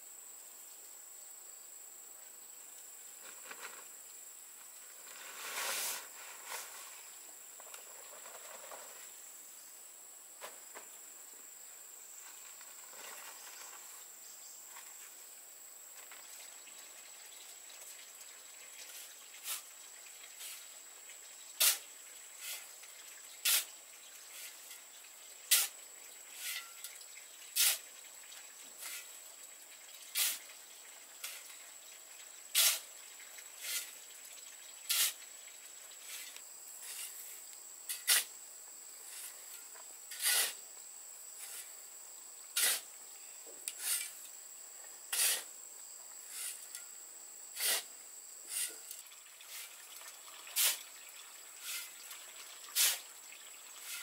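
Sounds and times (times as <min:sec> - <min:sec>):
shovel scraping cement mix: 0:05.0 - 0:07.0, 0:18.9 - 0:19.7, 0:20.4 - 0:20.7, 0:21.6 - 0:22.8, 0:23.4 - 0:24.8, 0:25.5 - 0:26.9, 0:27.6 - 0:27.9, 0:28.8 - 0:29.2, 0:30.1 - 0:30.5, 0:31.2 - 0:31.6, 0:32.5 - 0:32.9, 0:33.6 - 0:34.0, 0:34.9 - 0:35.2, 0:36.0 - 0:38.3, 0:39.1 - 0:40.6, 0:41.4 - 0:41.7, 0:42.6 - 0:42.9, 0:43.7 - 0:44.2, 0:45.1 - 0:45.5, 0:46.3 - 0:46.8, 0:47.6 - 0:47.9, 0:48.5 - 0:49.8, 0:50.5 - 0:50.8, 0:51.6 - 0:52.0, 0:52.7 - 0:53.1, 0:53.8 - 0:54.0.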